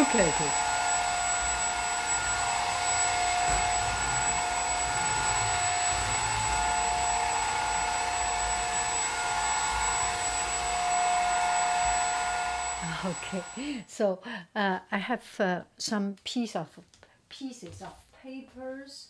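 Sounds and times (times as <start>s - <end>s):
stick vacuum motor whining: 0.0s - 13.8s.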